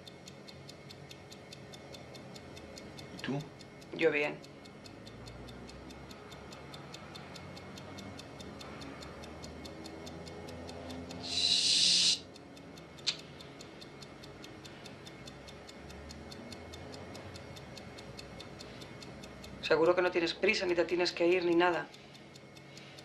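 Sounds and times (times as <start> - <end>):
clock ticking rapidly: 0.0 - 23.0
sharp click: 13.0 - 13.3.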